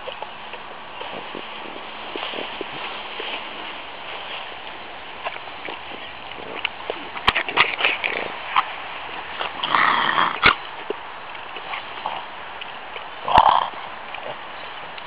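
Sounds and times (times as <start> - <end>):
dog snorting noises: 9.4 - 10.6, 13.2 - 14.5.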